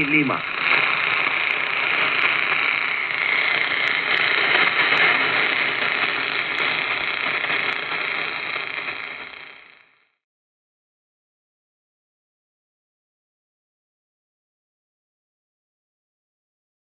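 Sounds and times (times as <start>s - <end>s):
radio receiver hiss and static: 0.0s - 10.2s.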